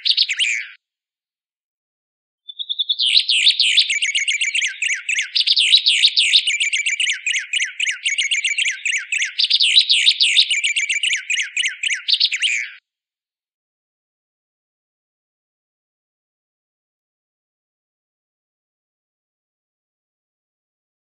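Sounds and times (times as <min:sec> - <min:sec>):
bird singing rapid chirps and trills: 0:00.0 - 0:00.8, 0:02.5 - 0:12.8.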